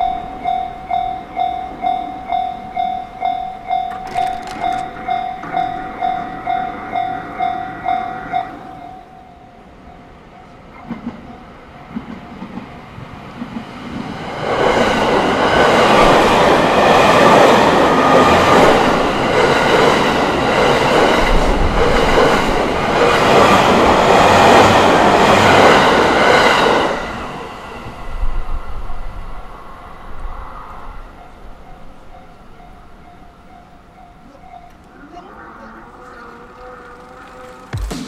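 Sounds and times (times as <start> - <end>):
train wheels clacking over rails: 3.7 - 6.4, 10.7 - 27.2.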